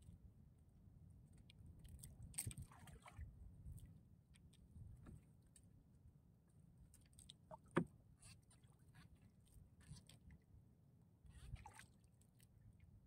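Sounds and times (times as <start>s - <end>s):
water lapping against hull: 1.7s - 5.4s, 6.8s - 10.6s, 11.2s - 13.0s.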